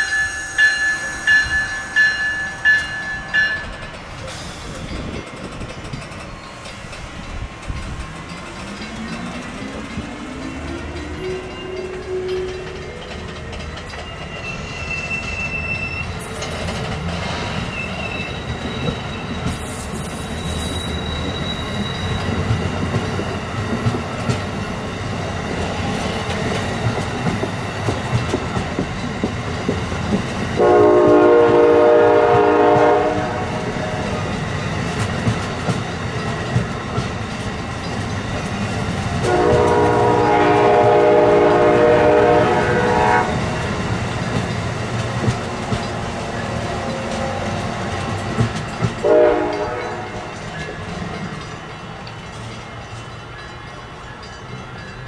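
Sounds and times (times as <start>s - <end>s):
multi-chime locomotive horn: 0.0s - 3.8s, 30.6s - 34.3s, 39.2s - 43.8s, 49.0s - 50.8s
train wheel clatter: 0.0s - 55.0s
high wheel squeal: 10.4s - 22.6s.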